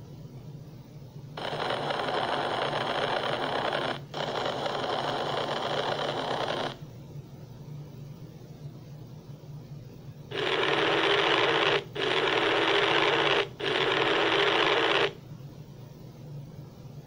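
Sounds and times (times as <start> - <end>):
steady low hum: 0.0 - 17.0
loud rushing static noise: 1.4 - 6.8, 10.3 - 15.2.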